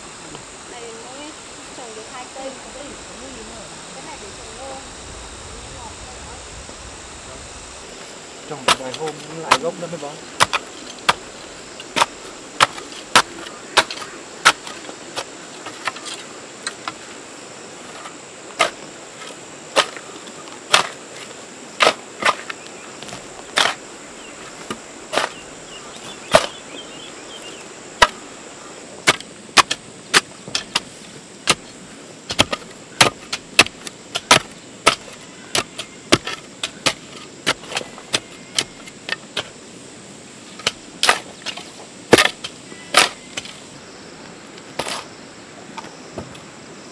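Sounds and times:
high-pitched insect drone: 0.0s - 29.2s, 42.4s - 46.9s.

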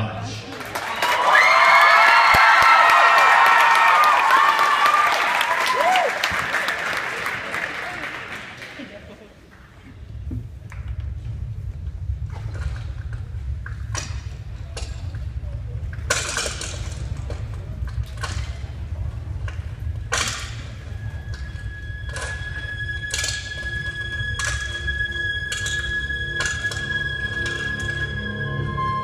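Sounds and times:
steady low hum: 9.5s - 29.0s
sustained high note: 21.6s - 29.0s.

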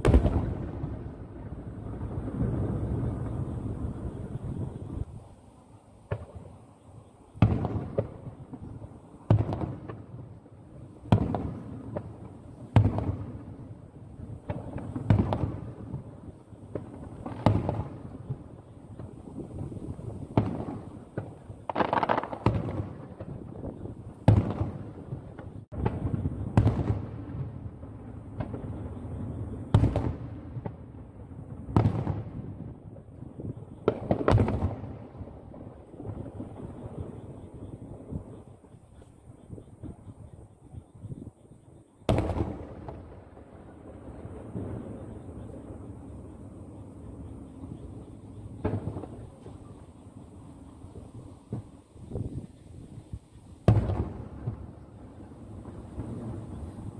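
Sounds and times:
firework bangs with echo: 0.0s - 4.7s, 7.4s - 10.2s, 11.1s - 13.5s, 14.4s - 16.1s, 16.7s - 37.2s, 42.1s - 46.0s, 53.6s - 56.7s.

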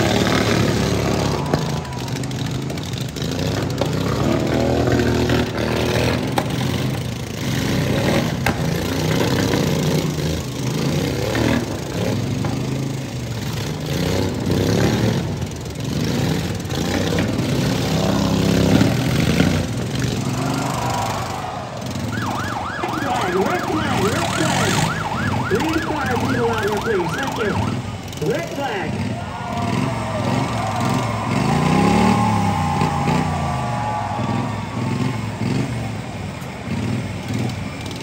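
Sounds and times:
lawn mower engines revving: 0.0s - 38.0s
wavering siren-like tone: 20.2s - 28.1s.

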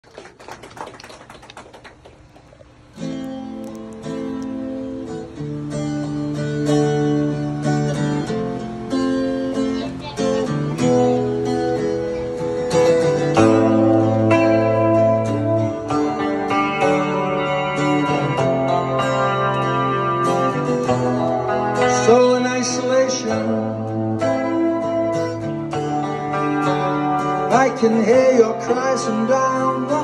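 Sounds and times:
electric guitar: 0.1s - 30.0s
acoustic guitar: 1.6s - 30.0s.

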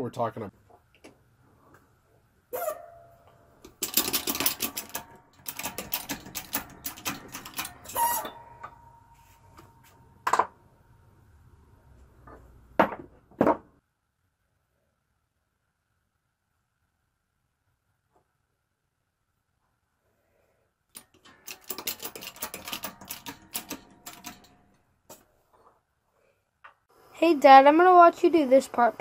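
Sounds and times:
ringing metal tone: 2.6s - 3.5s, 7.6s - 10.3s.

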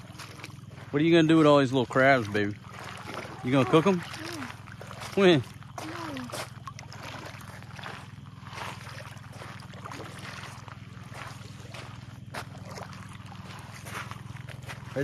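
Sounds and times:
footsteps on shelly sand: 0.0s - 15.0s
low mechanical hum: 0.0s - 15.0s.

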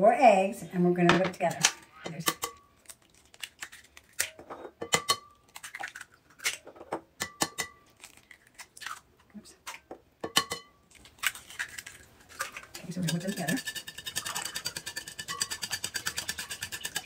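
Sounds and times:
eggshells crunching: 2.8s - 4.4s, 7.8s - 9.9s, 10.8s - 12.7s
eggs tapping on ceramic bowl: 10.2s - 10.8s, 13.0s - 17.0s.

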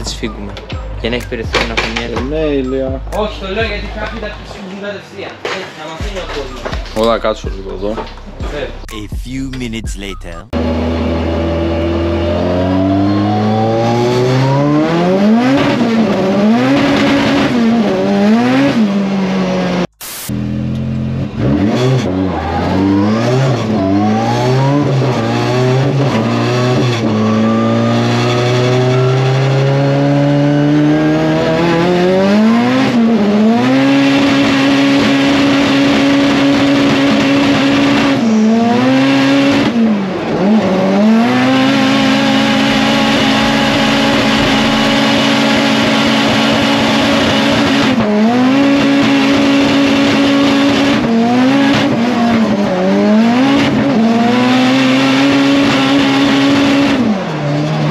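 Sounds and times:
car engine revving: 10.2s - 57.9s.

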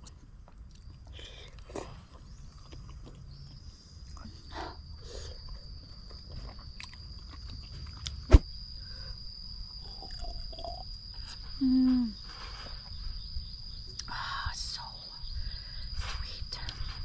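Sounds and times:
chewing: 0.0s - 4.4s, 5.4s - 8.3s.

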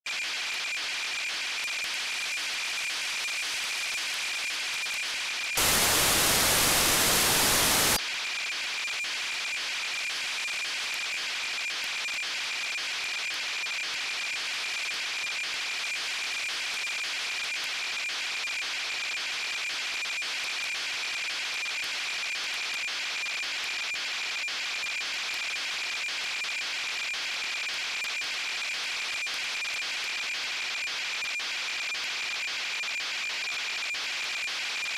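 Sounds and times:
burst of radio static: 5.6s - 8.0s
receiver hiss: 5.6s - 8.0s
steady high radio tone: 5.6s - 8.0s.

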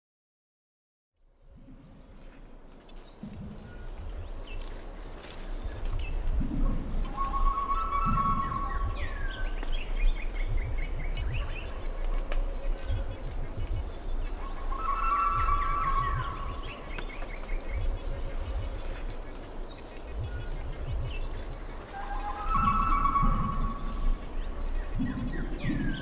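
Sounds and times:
insect drone: 1.2s - 26.0s
low rumbling: 1.4s - 26.0s
birds chirping and whistling: 2.4s - 26.0s.

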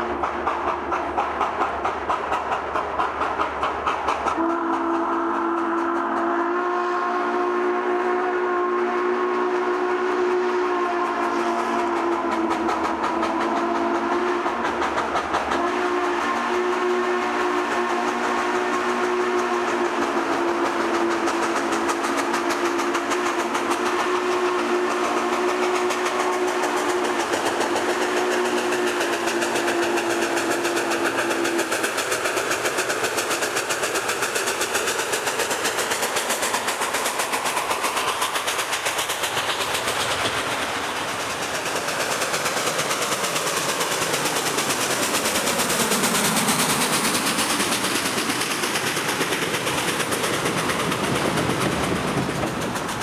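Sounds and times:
steam locomotive exhaust beating: 0.0s - 53.0s
steam whistle blasts: 4.4s - 12.5s, 13.1s - 14.5s, 15.6s - 31.7s.

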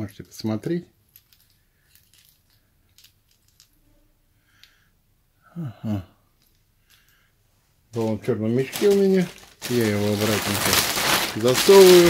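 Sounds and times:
person speaking: 7.9s - 12.0s.

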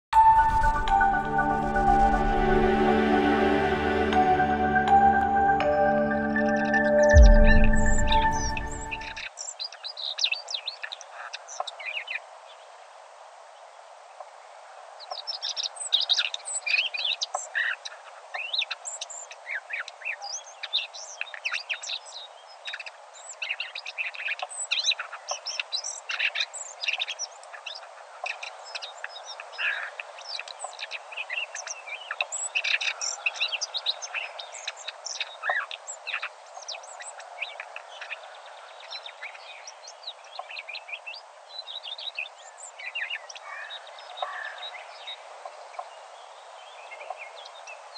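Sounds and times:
small birds chirping and trilling: 8.2s - 12.6s, 15.0s - 47.9s.

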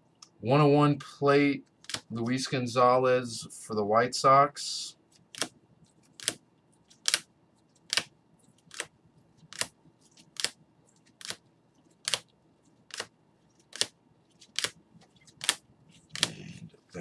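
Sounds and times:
plastic card holders clicking: 6.2s - 6.4s, 12.0s - 12.3s, 13.7s - 14.8s.

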